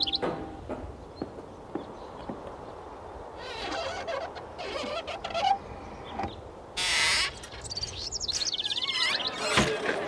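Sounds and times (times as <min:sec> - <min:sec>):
bird and animal chattering calls: 0:06.8 - 0:09.6.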